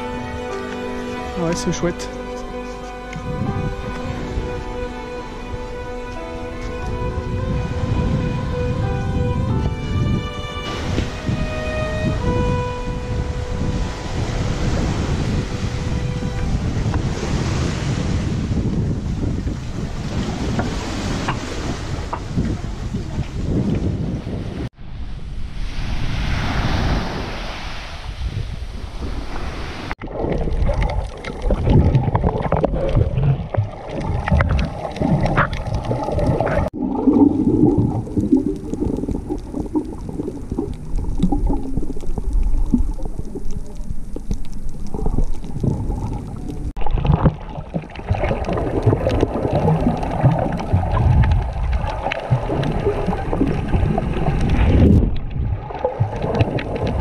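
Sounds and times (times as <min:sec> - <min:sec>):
wind hiss: 0:03.2 - 0:23.2, 0:24.0 - 0:30.0
underwater churning and gurgling: 0:30.0 - 0:57.0.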